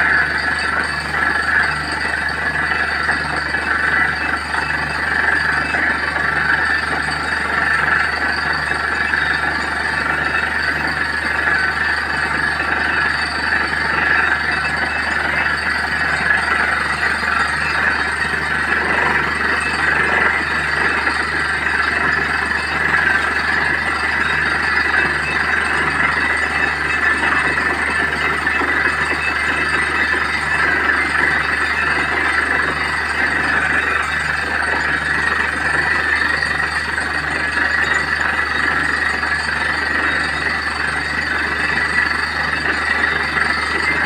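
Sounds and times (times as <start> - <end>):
drilling rig engine drone: 0.0 - 44.0.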